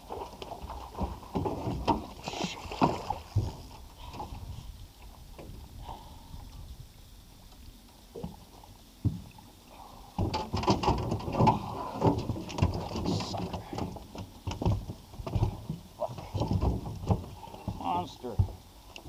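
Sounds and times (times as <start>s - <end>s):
gear knocking against boat: 10.1s - 18.6s.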